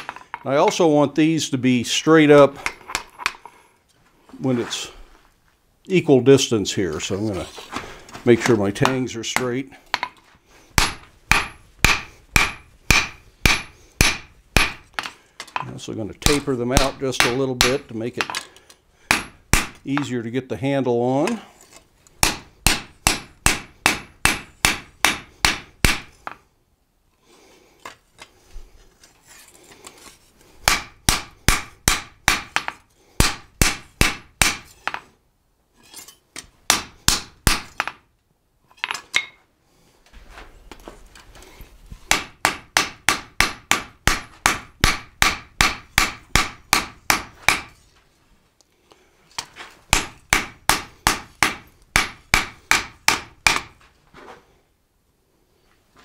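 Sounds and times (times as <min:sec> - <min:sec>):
hammer striking steel on anvil: 0:10.8 - 0:15.1, 0:16.3 - 0:18.3, 0:19.1 - 0:19.8, 0:22.2 - 0:26.4, 0:30.6 - 0:35.0, 0:42.1 - 0:47.8, 0:49.9 - 0:53.8.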